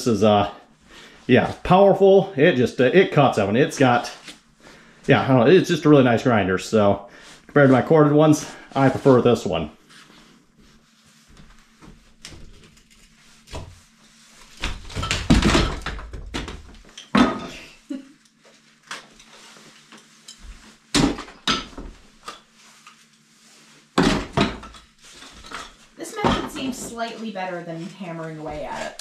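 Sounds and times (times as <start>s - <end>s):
plaster and lath cracking: 11.1s - 17.2s.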